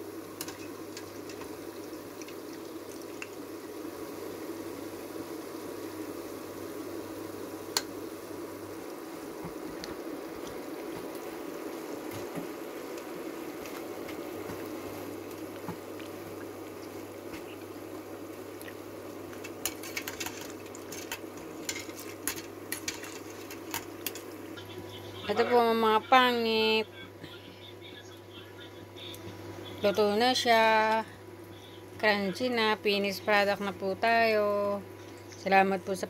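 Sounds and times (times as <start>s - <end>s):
oil bubbling while deep-frying: 0.0s - 24.7s, 32.8s - 36.0s.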